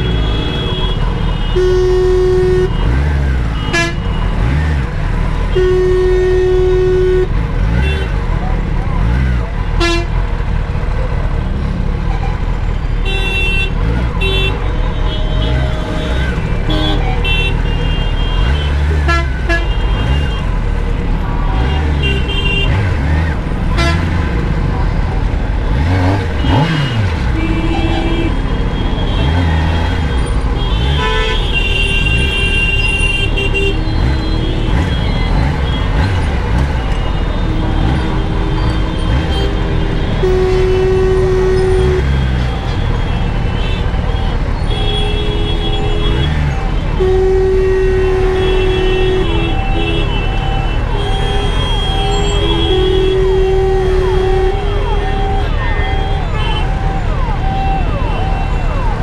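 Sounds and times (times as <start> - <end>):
vehicle horns honking: 0.0 - 8.4, 9.0 - 10.4, 13.0 - 59.0
motorcycle engine revving: 0.0 - 12.5, 13.6 - 44.9.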